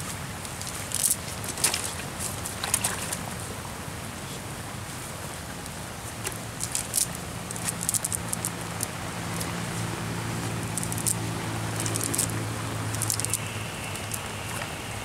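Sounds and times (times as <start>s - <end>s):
low steady hum: 0.0s - 15.0s
net clicks and rustles: 0.4s - 3.3s, 6.2s - 9.6s, 10.5s - 14.8s.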